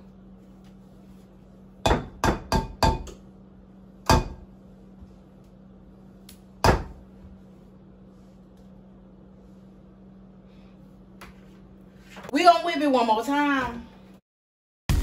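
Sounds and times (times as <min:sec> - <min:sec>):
utensil knocking on mixing bowl: 0:01.8 - 0:03.2.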